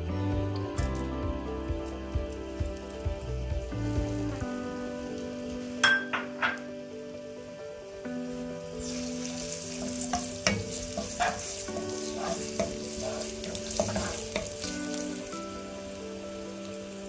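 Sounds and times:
onions sizzling in hot oil: 0:00.7 - 0:17.0
wooden spatula scraping a pan: 0:08.8 - 0:14.7.

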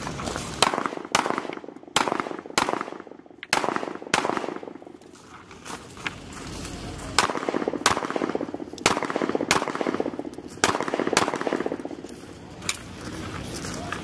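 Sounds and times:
pistol shots: 0:00.6 - 0:05.0, 0:07.2 - 0:12.0.

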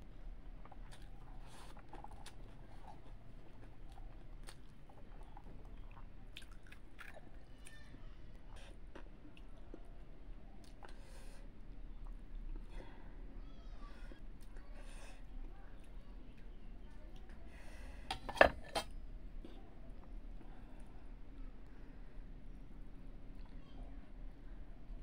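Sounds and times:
person chewing with mouth smacks: 0:00.5 - 0:07.8.

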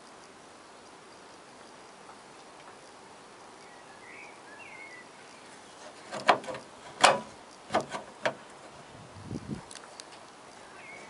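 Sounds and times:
faint chirping: 0:00.0 - 0:07.7, 0:10.4 - 0:11.0
latch knocks and clicks: 0:06.1 - 0:08.5.

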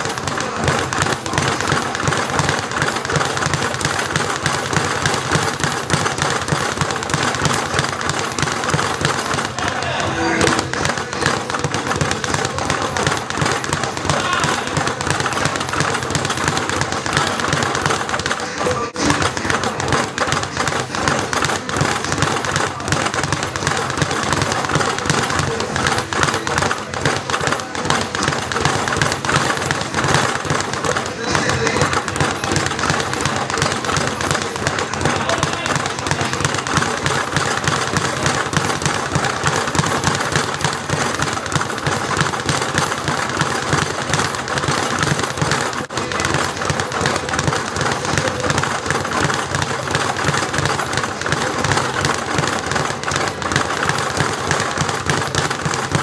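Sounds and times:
speed bag rattling: 0:00.0 - 0:56.0.

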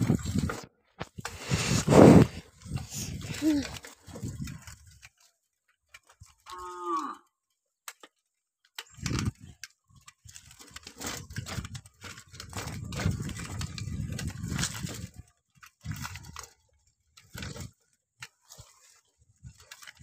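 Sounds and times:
bicycle rattling over dirt path: 0:00.0 - 0:20.0
cow mooing: 0:06.5 - 0:07.3.

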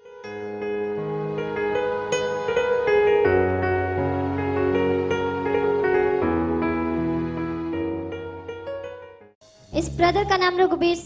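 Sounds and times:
slow instrumental music: 0:00.0 - 0:11.0.

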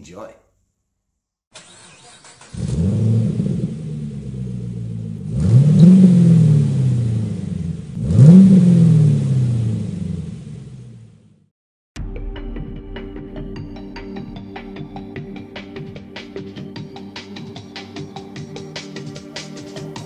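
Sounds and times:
car engine idling and revving: 0:01.6 - 0:11.5.

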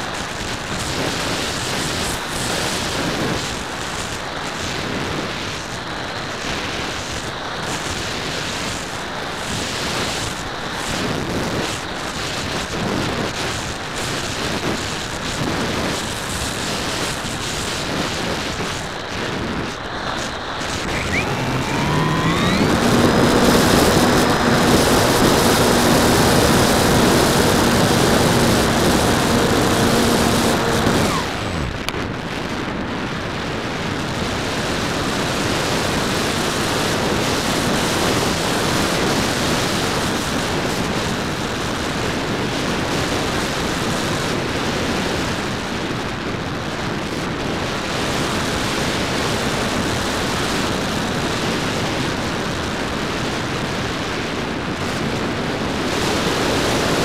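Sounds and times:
electric motor and propeller whine: 0:16.0 - 0:32.2
airflow rushing: 0:20.0 - 0:32.0.

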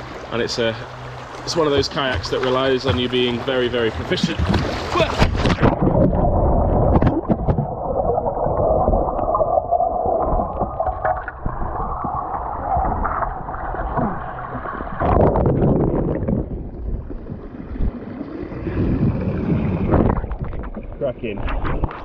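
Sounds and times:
kayak splash: 0:00.0 - 0:16.5
muffled underwater river rushing: 0:00.0 - 0:22.0.

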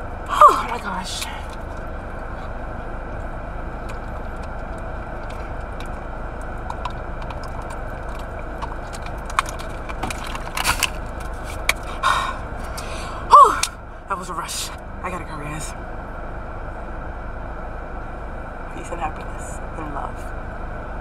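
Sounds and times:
car interior hum: 0:00.0 - 0:21.0
person gulping water: 0:03.8 - 0:11.1.

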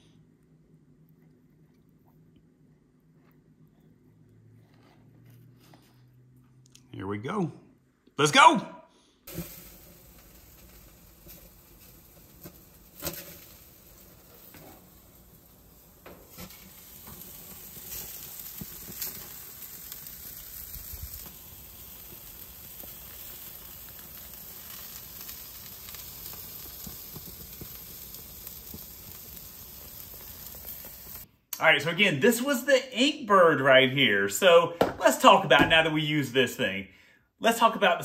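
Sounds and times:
meat sizzling on a grill: 0:09.3 - 0:31.3.

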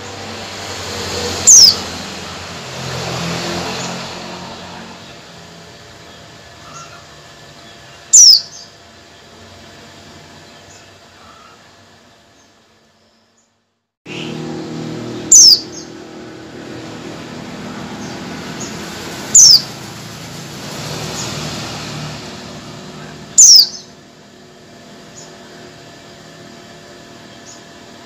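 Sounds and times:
bird short down-slurred calls: 0:01.5 - 0:01.8, 0:15.3 - 0:16.0, 0:23.0 - 0:24.0
faint bird chirps: 0:06.2 - 0:08.8, 0:23.0 - 0:24.0.

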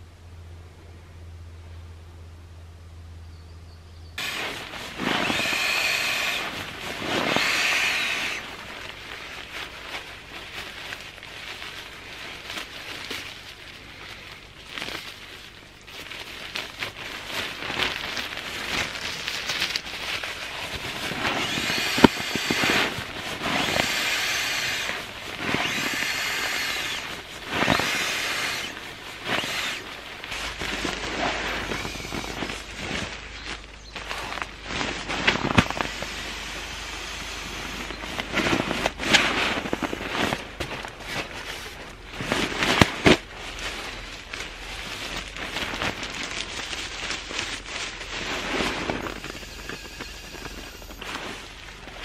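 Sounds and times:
fabric rustling: 0:04.2 - 0:23.8, 0:28.6 - 0:35.8, 0:37.7 - 0:52.0.

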